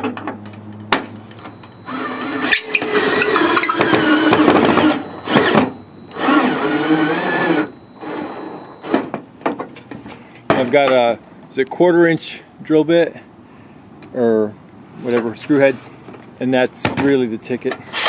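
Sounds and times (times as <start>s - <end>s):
cordless drill motor whine: 1.3s - 9.0s.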